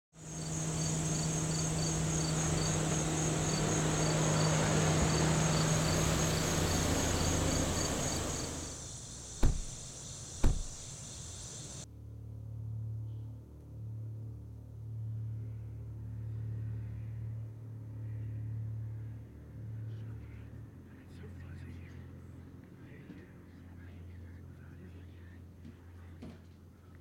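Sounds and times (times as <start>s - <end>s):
insects chirping with pulsing trill: 0.2s - 11.8s
broad rushing noise: 0.7s - 11.8s
sharp knocks: 9.3s - 11.0s.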